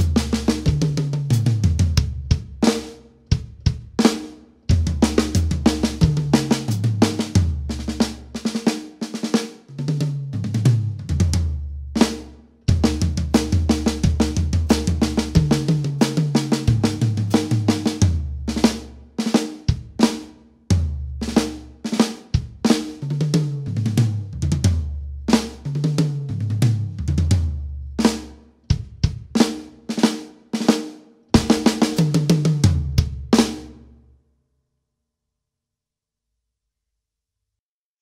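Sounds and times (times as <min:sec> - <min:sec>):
tom drum runs: 0:00.0 - 0:02.8, 0:04.7 - 0:08.6, 0:10.0 - 0:18.9, 0:31.4 - 0:33.7
bass drum: 0:00.0 - 0:08.5, 0:09.8 - 0:19.0, 0:19.7 - 0:21.8, 0:22.4 - 0:29.7, 0:31.4 - 0:33.8
snare drum rudiments: 0:00.0 - 0:33.8.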